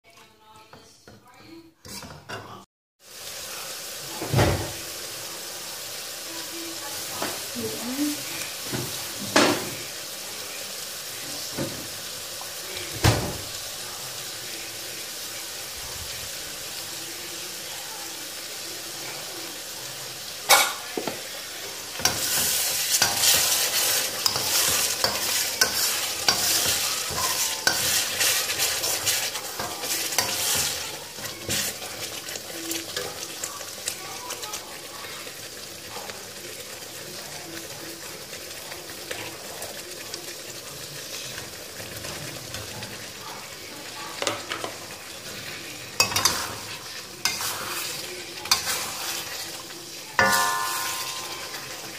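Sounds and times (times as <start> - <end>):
chili paste frying in a wok: 3.0 - 51.9
loud sizzling and crackling: 3.0 - 51.9
metal spatula knocking on pan: 50.2 - 51.6.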